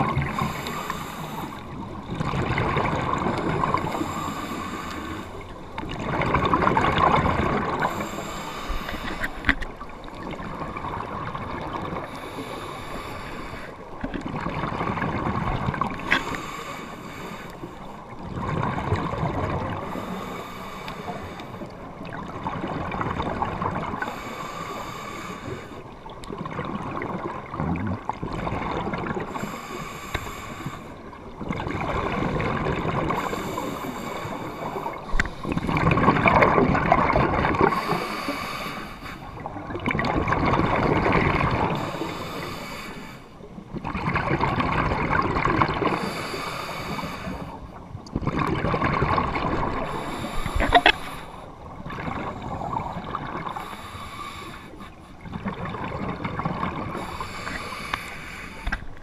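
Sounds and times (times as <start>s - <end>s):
muffled underwater rumble: 0.0s - 59.0s
regulator bubbles gurgling: 0.0s - 59.0s.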